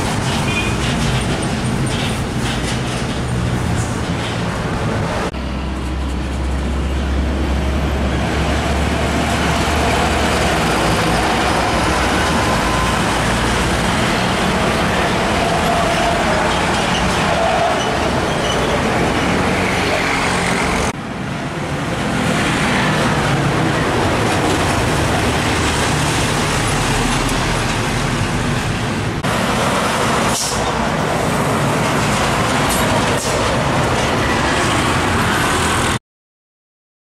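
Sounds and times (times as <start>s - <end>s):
heavy trucks passing: 0.0s - 36.0s.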